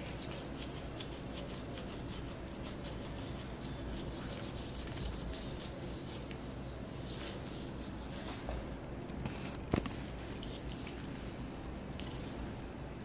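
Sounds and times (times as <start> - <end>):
gloves rubbing on skin: 0.0 - 8.5.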